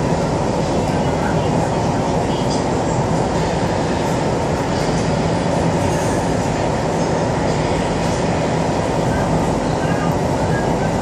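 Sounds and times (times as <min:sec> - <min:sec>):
wheels rumbling on rail: 0:00.0 - 0:11.0.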